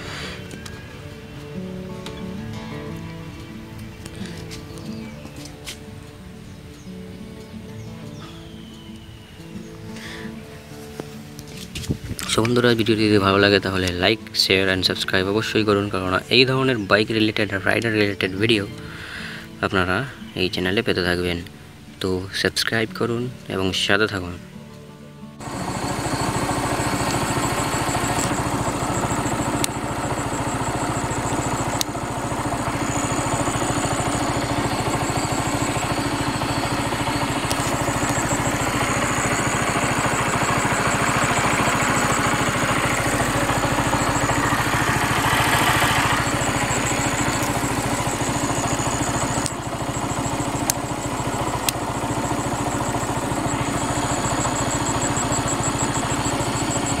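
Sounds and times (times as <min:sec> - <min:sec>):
motorcycle engine running: 0:00.0 - 0:20.2, 0:25.3 - 0:57.0
sharp clicks: 0:25.4 - 0:57.0.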